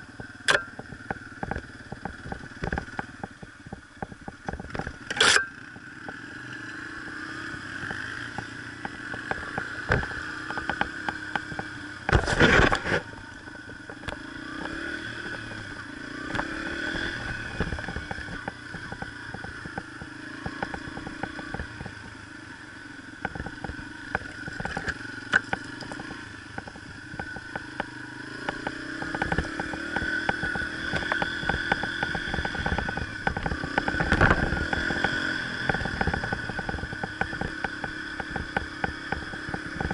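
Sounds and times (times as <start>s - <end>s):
bike rattles and knocks: 0.0s - 6.5s, 7.1s - 39.9s
dirt bike engine revving: 4.8s - 39.9s.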